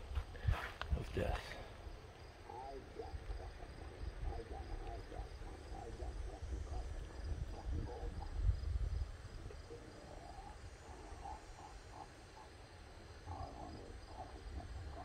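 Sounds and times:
rumbling and rustling on dirt slope: 0.0s - 6.0s
insects chirping: 0.0s - 15.0s.

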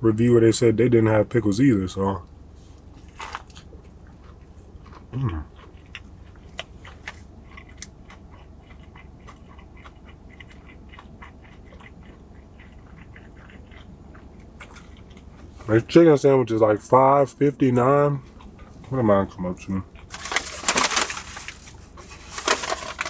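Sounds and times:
person chewing food: 2.3s - 16.0s, 17.8s - 23.0s
person humming mm: 5.1s - 5.5s.

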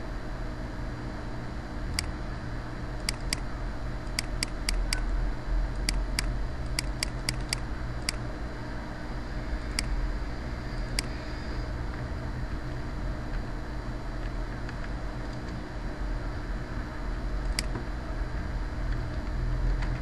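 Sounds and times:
steady low hum: 0.0s - 20.0s
computer mouse clicking: 3.0s - 3.4s, 4.1s - 5.1s, 5.8s - 8.2s, 10.9s - 11.2s, 17.5s - 17.8s.

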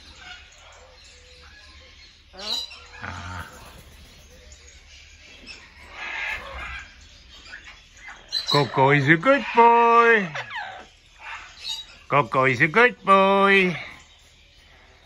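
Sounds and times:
parrot rough noisy call: 2.3s - 4.0s.

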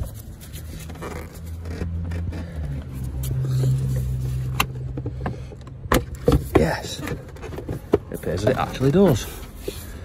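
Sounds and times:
plastic airbox scraping: 0.0s - 10.0s.

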